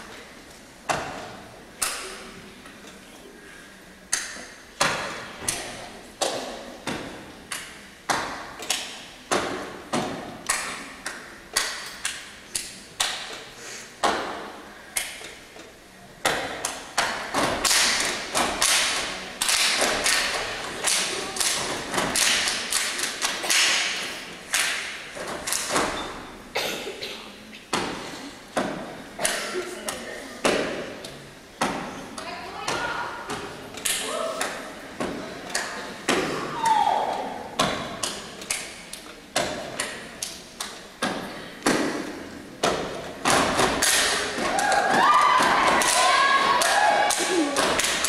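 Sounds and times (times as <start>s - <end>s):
claps in unison: 16.6s - 25.7s, 43.7s - 48.0s.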